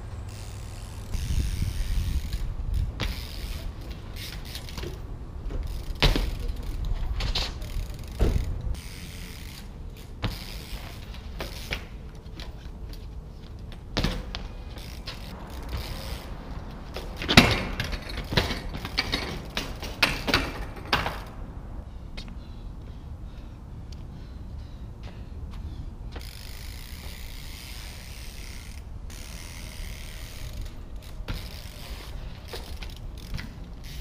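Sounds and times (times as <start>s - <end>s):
freewheel hub clicking: 0.2s - 11.8s, 14.7s - 21.3s, 26.2s - 34.0s
bike landing knocks: 2.2s - 8.6s, 13.8s - 15.9s, 16.9s - 21.3s
bike clattering onto paving: 2.2s - 16.3s, 16.9s - 21.4s, 29.4s - 34.0s.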